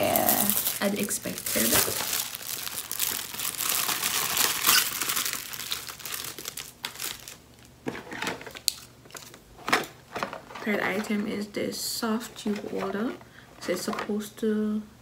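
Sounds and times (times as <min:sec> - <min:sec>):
packaging crinkling: 0:00.0 - 0:10.6.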